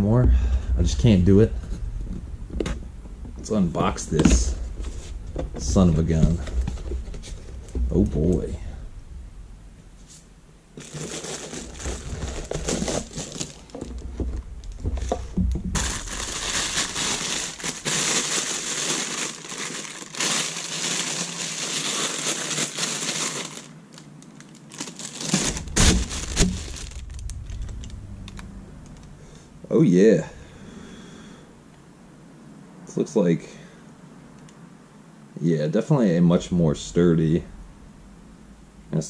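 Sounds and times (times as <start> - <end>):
plastic bag crinkling: 10.8 - 29.1.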